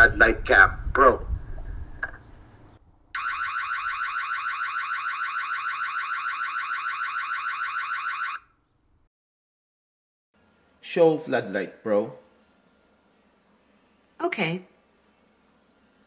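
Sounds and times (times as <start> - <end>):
loud warbling siren alarm: 3.2 - 8.5.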